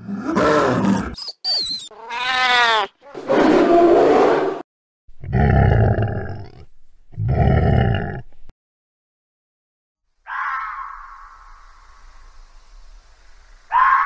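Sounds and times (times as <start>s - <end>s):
animal rough roars: 0.0s - 1.2s, 5.2s - 8.3s
animal cry with sliding pitch: 0.1s - 4.6s, 10.2s - 11.6s, 13.7s - 14.0s.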